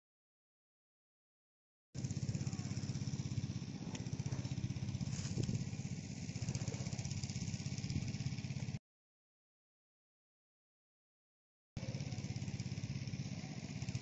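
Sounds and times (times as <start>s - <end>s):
small engine puttering: 2.0s - 8.8s, 11.8s - 14.0s.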